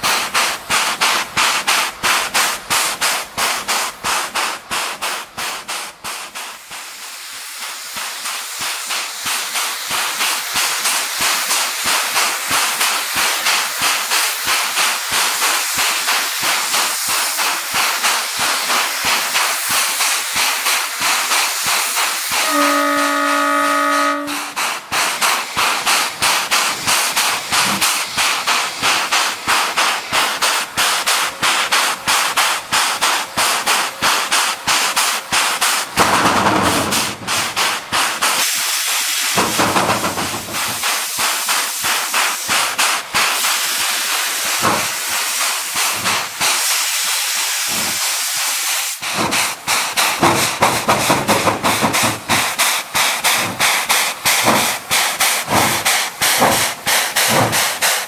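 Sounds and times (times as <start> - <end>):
hiss of escaping steam: 0.0 - 58.0
steam locomotive exhaust beats: 0.0 - 58.0
steam whistle blast: 22.3 - 24.6.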